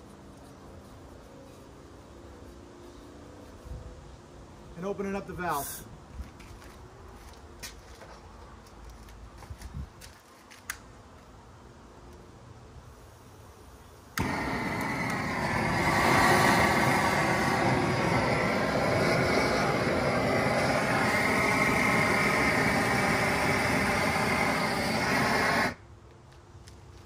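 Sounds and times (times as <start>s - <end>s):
torch switch click: 14.2s - 15.4s
steady rush of gas: 14.2s - 25.8s.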